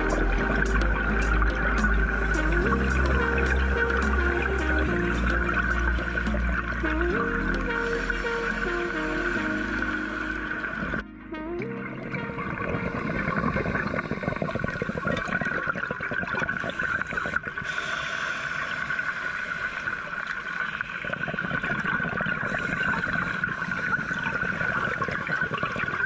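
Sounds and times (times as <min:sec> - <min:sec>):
gurgling water: 0:00.0 - 0:26.0
underwater crackle: 0:12.0 - 0:26.0.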